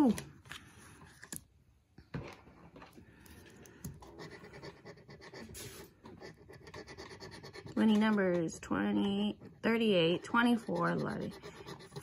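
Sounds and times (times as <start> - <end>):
scratching a lottery ticket: 4.1 - 12.0.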